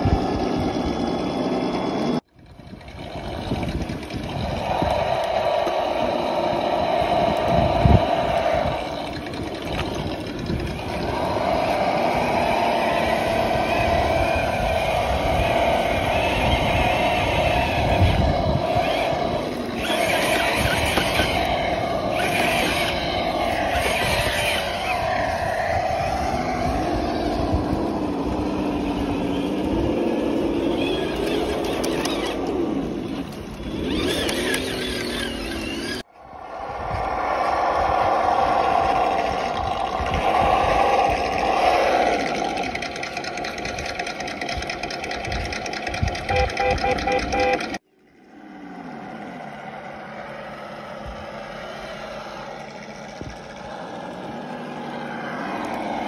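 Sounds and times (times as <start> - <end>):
simulated engine sound: 0.0 - 56.0
toy car driving through stream: 0.0 - 56.0.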